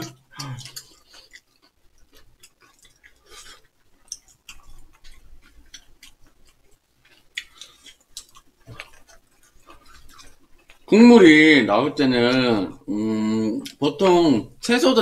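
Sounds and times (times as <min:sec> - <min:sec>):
wet mouth clicks and smacks: 0:00.0 - 0:10.9
people chewing food: 0:00.0 - 0:14.7.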